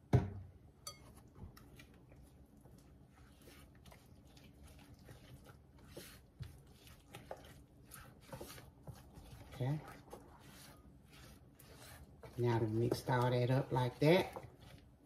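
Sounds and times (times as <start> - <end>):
spatula stirring batter in bowl: 0.8 - 15.0.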